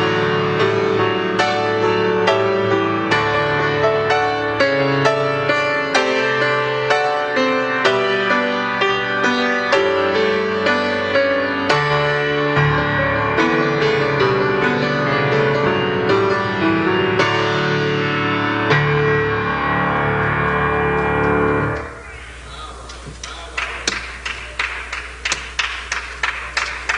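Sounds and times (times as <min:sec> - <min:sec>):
slow grand piano piece: 0:00.0 - 0:26.9
hand clapping: 0:22.8 - 0:26.9.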